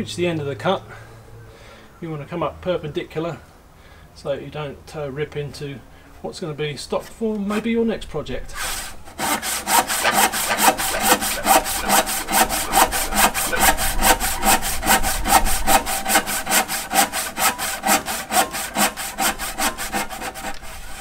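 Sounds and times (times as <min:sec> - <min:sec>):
handsaw rasping through wood: 0:08.5 - 0:21.0.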